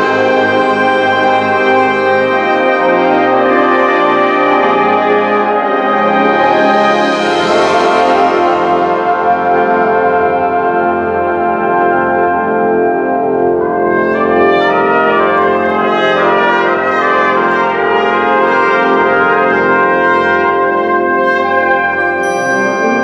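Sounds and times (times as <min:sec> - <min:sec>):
wind band playing chords: 0:00.0 - 0:23.0
high ringing tones: 0:22.0 - 0:23.0.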